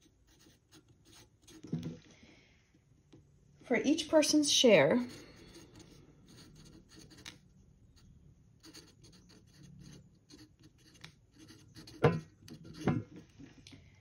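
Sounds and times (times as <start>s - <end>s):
marker pen writing on paper: 0.0s - 1.8s, 5.0s - 7.4s, 8.0s - 13.0s.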